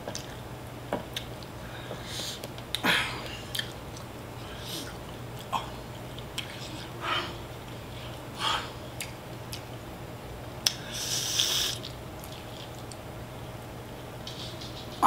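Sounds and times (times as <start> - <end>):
chewing and wet mouth noises: 1.1 - 1.6, 2.4 - 9.8, 10.6 - 13.1.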